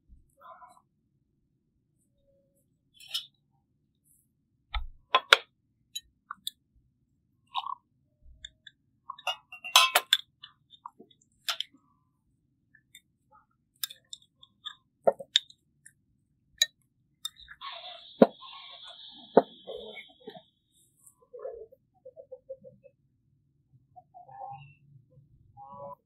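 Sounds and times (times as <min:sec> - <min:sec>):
glass cups and spoons clinking: 0:09.1 - 0:10.3
teapot lid clinking: 0:09.2 - 0:10.2.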